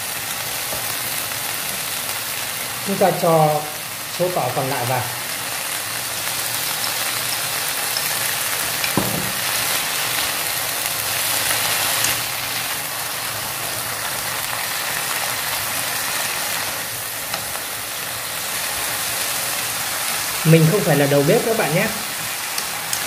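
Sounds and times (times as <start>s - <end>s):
vegetables sizzling in hot oil: 0.0s - 23.0s
knock on pan: 8.9s - 9.4s.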